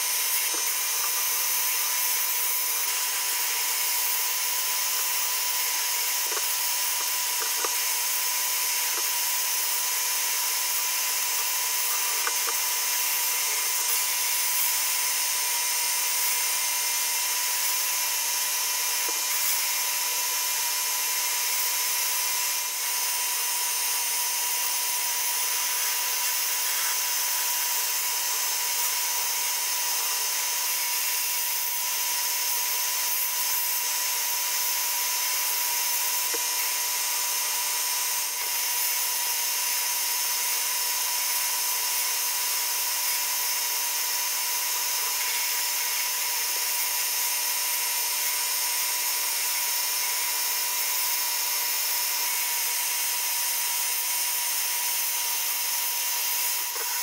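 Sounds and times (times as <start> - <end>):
sandblasting gun hissing: 0.0 - 57.0.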